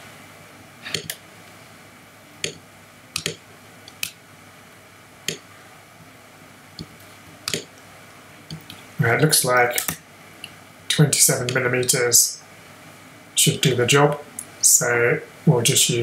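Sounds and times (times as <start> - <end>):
faint steady hiss: 0.0 - 16.0
mouse and keyboard clicks: 0.9 - 1.2, 3.2 - 4.2, 7.5 - 7.7.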